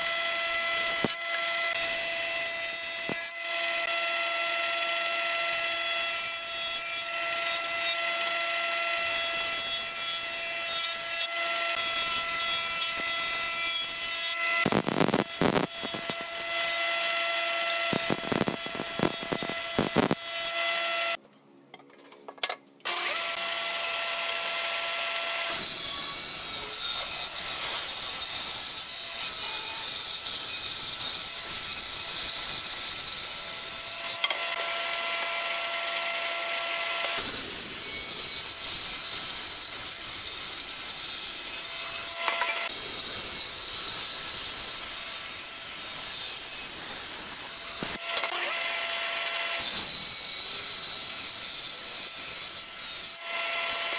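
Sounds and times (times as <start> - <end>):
jointer motor whine: 0.0 - 2.4, 3.0 - 9.4, 11.2 - 21.2
cutter biting wood: 3.0 - 21.0, 22.9 - 24.4, 41.3 - 53.9.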